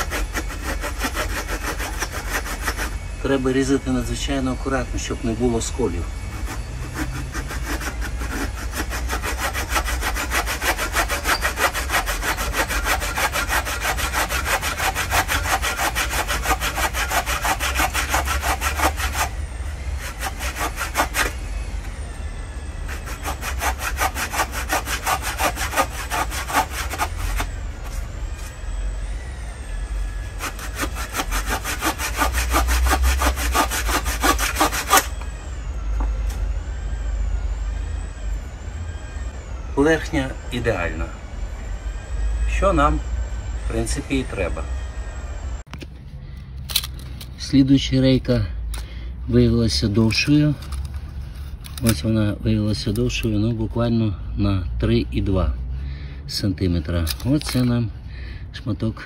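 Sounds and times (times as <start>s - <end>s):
hand saw cutting wood: 0.0s - 3.0s, 6.2s - 21.4s, 22.9s - 27.6s, 30.3s - 35.2s.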